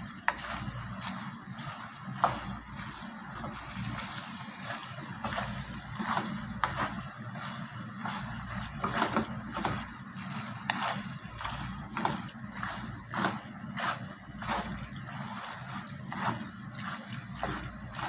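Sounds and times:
steady low hum: 0.0 - 18.0
wooden spoon stirring pasta in pan: 0.0 - 18.0.

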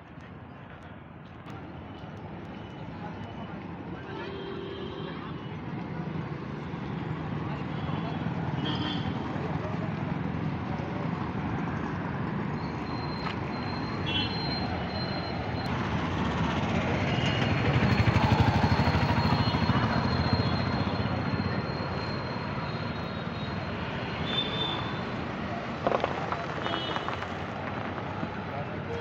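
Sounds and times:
motorbike engines running: 5.2 - 29.0.

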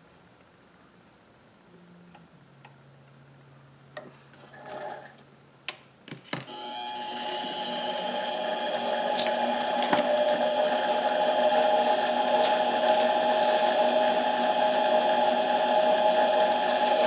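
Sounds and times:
lathe motor whining: 6.5 - 17.0.

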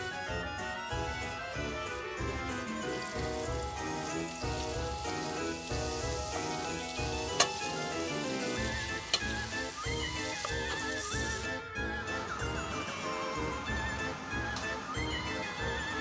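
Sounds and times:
light background music: 0.0 - 16.0
onions sizzling in butter: 2.5 - 11.6.

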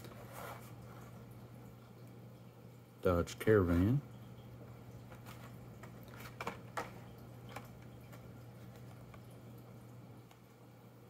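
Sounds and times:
clicks and rustles of card and plastic: 5.1 - 9.3.

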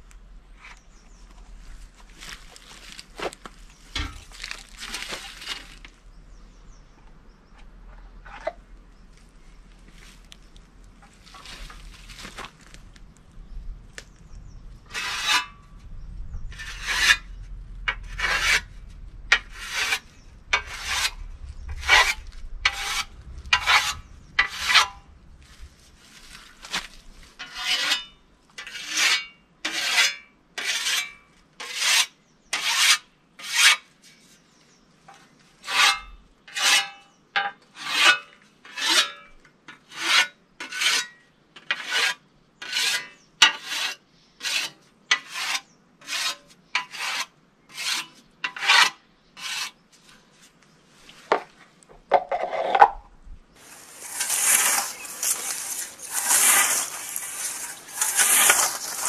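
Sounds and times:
whetstone scraping scythe blade: 14.9 - 15.6, 16.6 - 17.3, 17.9 - 18.7, 19.3 - 25.0, 26.8 - 33.9, 35.6 - 49.8, 53.6 - 59.0.

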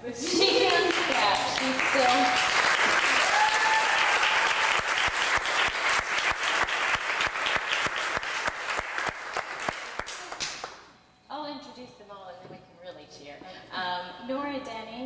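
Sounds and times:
audience applauding: 0.2 - 10.8.

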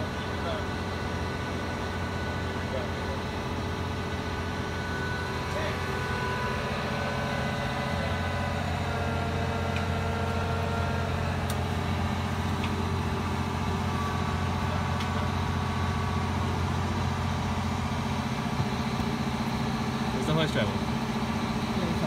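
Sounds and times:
crane diesel engine droning: 0.0 - 22.0.

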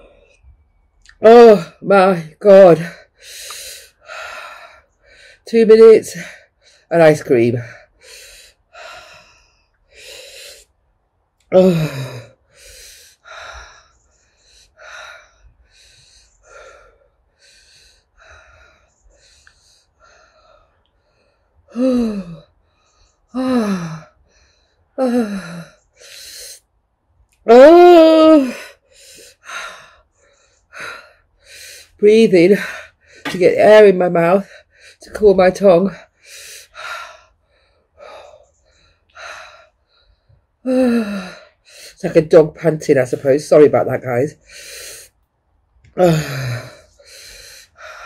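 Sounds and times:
woman moaning: 1.2 - 2.9, 11.5 - 12.3, 21.7 - 22.4, 23.4 - 24.0, 25.0 - 25.7, 27.5 - 28.7, 40.7 - 41.4, 46.0 - 46.8
woman breathing hard: 2.9 - 5.4, 7.8 - 10.8, 11.6 - 26.7, 46.0 - 48.0.

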